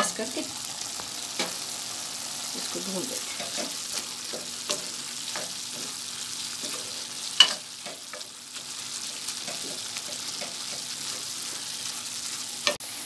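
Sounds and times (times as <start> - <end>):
meat sizzling in oil: 0.0 - 13.0
spoon scraping pan: 3.2 - 12.8
metal spoon clinking on pan: 7.4 - 8.2.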